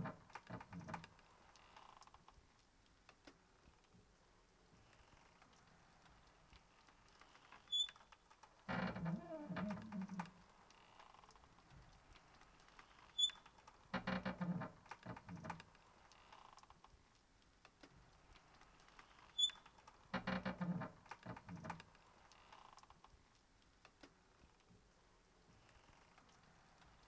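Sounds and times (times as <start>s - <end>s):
short high squeak: 7.7s - 8.0s.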